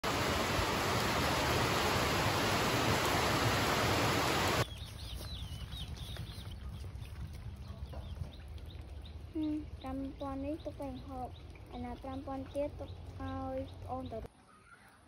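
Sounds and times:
loud rain hiss: 0:00.0 - 0:04.6
birds chirping: 0:00.1 - 0:15.0.

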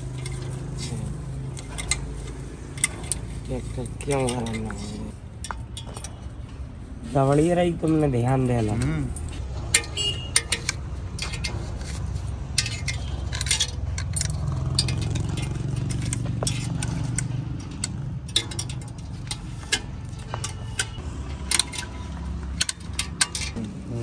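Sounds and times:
low engine rumble: 0:00.0 - 0:24.0
metal tool clicking on fins: 0:08.6 - 0:23.6.

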